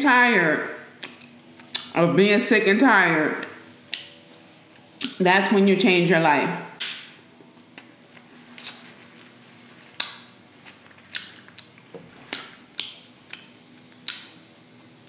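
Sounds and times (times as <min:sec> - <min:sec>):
lip smacks: 0:01.0 - 0:02.0, 0:08.6 - 0:08.9, 0:10.0 - 0:10.4, 0:11.1 - 0:14.4
wet chewing: 0:10.0 - 0:14.9.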